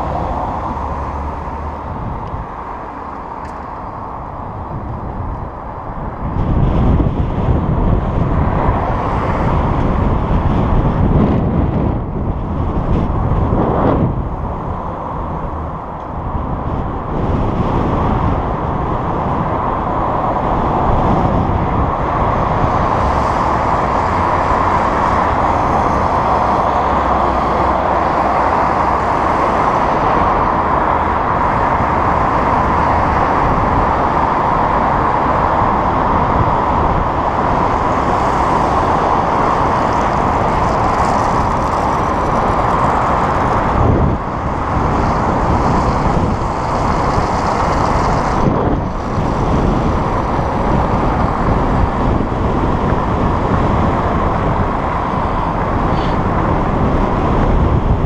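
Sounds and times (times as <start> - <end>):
bicycle road noise: 0.0 - 58.0
car traffic: 0.0 - 58.0
wind rushing: 0.0 - 58.0.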